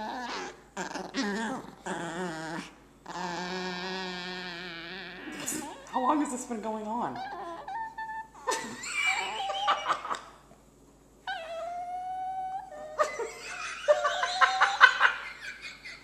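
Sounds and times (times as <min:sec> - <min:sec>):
small dog whining: 0:00.0 - 0:06.4, 0:07.0 - 0:10.2, 0:11.2 - 0:13.4.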